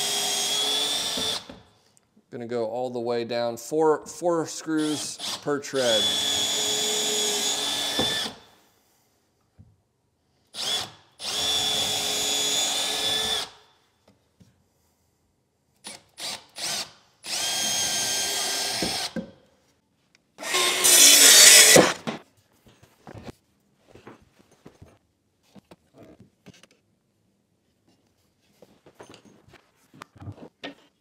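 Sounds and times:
cordless drill boring into wood: 0:00.0 - 0:01.6, 0:04.8 - 0:08.5, 0:10.6 - 0:13.6, 0:15.9 - 0:19.2, 0:20.4 - 0:22.0.

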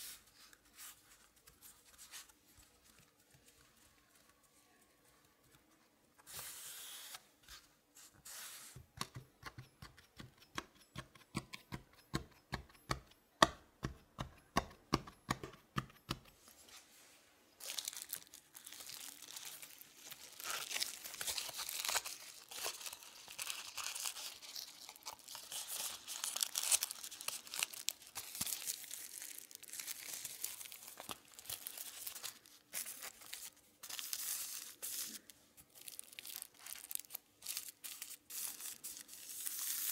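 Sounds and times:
baking paper crinkling and tearing: 0:17.6 - 0:39.9.

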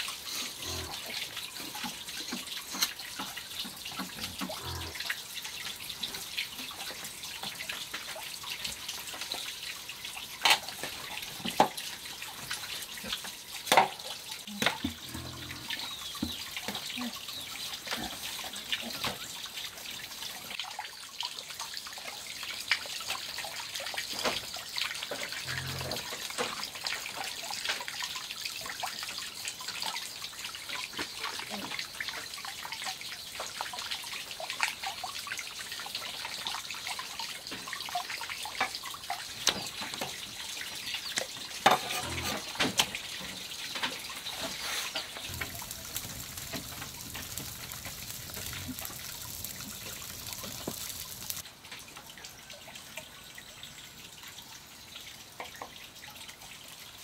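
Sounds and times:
running water trickling: 0:00.0 - 0:57.0.

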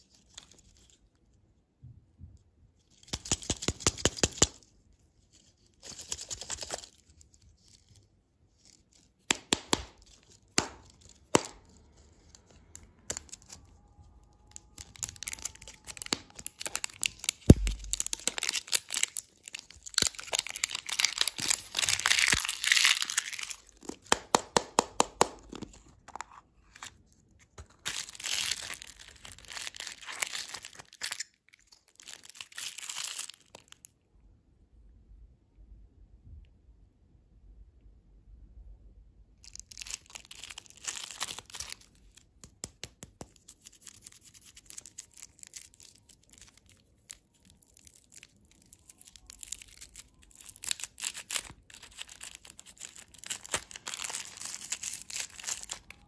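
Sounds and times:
plastic wrapper crinkling: 0:05.3 - 0:33.9, 0:39.4 - 0:56.0
plastic capsule clicks: 0:14.5 - 0:26.9.

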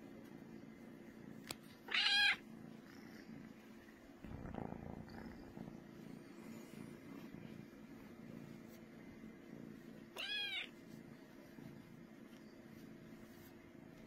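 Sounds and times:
kitten purring: 0:00.0 - 0:12.1
kitten meowing: 0:01.9 - 0:02.4, 0:10.2 - 0:10.7.

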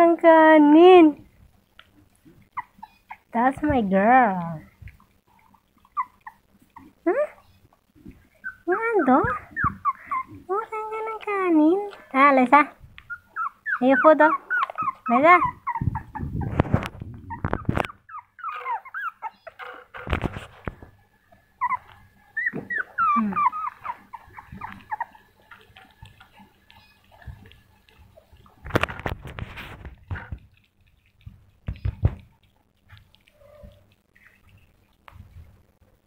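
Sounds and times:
puppies whimpering: 0:02.5 - 0:03.3, 0:05.3 - 0:12.2, 0:13.0 - 0:19.8, 0:21.4 - 0:28.6
rustles and knocks: 0:19.6 - 0:21.0, 0:31.3 - 0:32.4.

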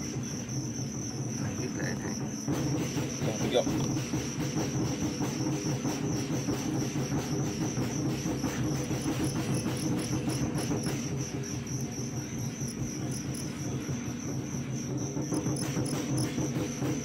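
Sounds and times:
cricket chirping trill: 0:00.0 - 0:17.0.

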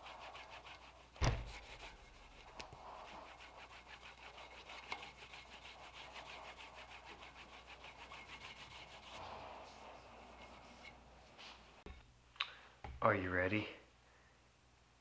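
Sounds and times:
cloth rubbing knife handle: 0:00.0 - 0:09.2.

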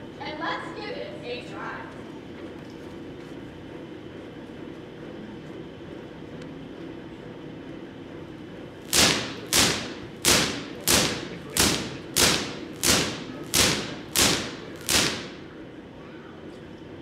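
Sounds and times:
sharp electric spark cracks: 0:08.9 - 0:15.5.

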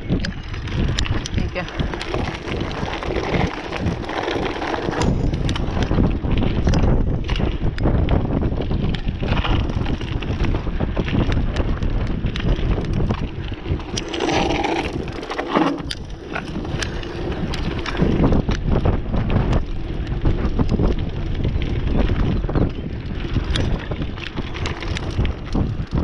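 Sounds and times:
bike rattling and clicking: 0:00.0 - 0:26.0
wind buffeting microphone: 0:00.0 - 0:26.0
tyres crunching on gravel: 0:00.4 - 0:07.6.

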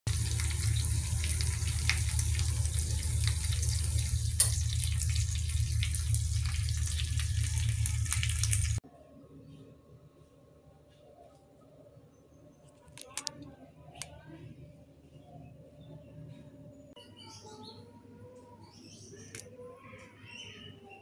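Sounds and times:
food sizzling with pops: 0:00.1 - 0:08.8
low hum: 0:00.1 - 0:10.8.

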